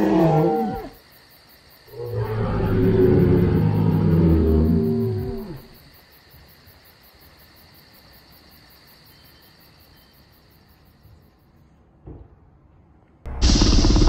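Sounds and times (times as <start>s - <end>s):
dinosaur roar sound effect: 0.0s - 1.0s, 1.9s - 5.8s, 13.3s - 14.0s
crickets chirping: 0.0s - 11.8s.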